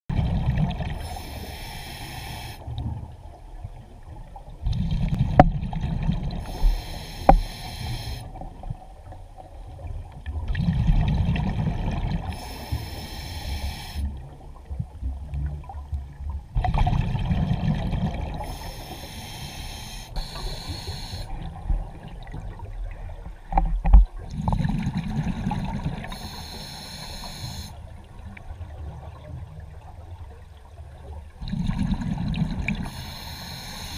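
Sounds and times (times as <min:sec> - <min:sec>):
hissing regulator inhale: 0:01.0 - 0:02.7, 0:06.4 - 0:08.4, 0:12.3 - 0:14.1, 0:18.4 - 0:21.4, 0:26.0 - 0:27.8, 0:32.8 - 0:33.9.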